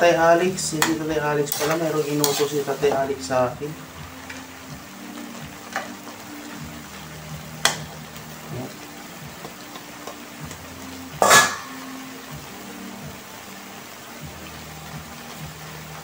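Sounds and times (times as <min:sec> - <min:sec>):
spatula clanging on steel bowl: 0:00.8 - 0:02.6, 0:11.2 - 0:11.6
metal spatula stirring in wok: 0:00.8 - 0:03.0.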